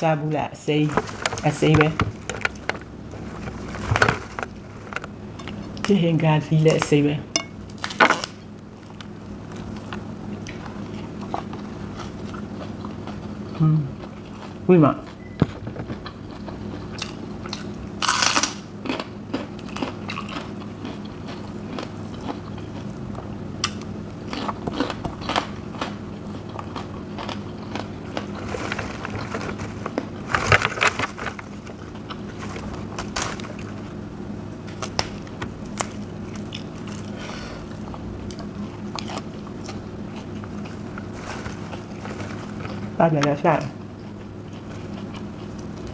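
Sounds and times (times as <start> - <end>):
wet chewing: 8.9 - 34.0, 34.7 - 43.0, 43.8 - 45.9
crunching bites: 15.4 - 33.8.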